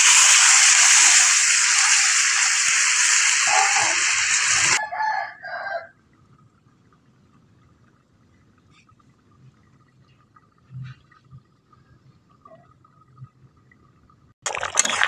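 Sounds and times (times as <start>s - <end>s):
water sizzling in hot pan: 0.0s - 4.8s.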